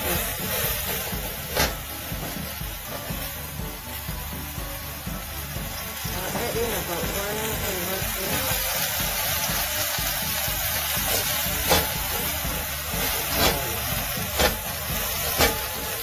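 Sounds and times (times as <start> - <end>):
metal spatula scraping a pan: 0.0 - 3.2, 10.8 - 16.0
leeks sizzling in a wok: 0.0 - 16.0.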